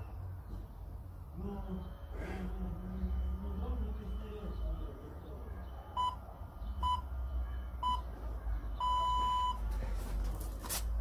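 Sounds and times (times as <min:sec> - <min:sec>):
timer beeps: 0:06.0 - 0:06.2, 0:06.8 - 0:07.1, 0:07.8 - 0:08.1, 0:08.8 - 0:09.6.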